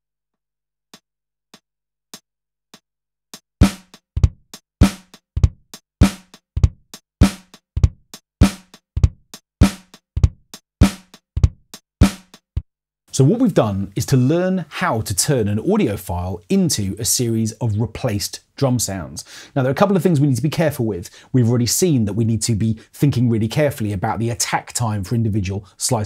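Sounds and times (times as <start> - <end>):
kick and snare hits: 3.6 - 12.3.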